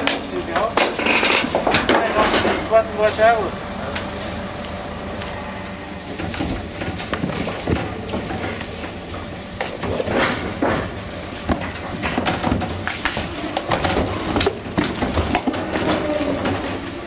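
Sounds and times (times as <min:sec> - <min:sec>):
cattle thuds: 0:06.0 - 0:17.0.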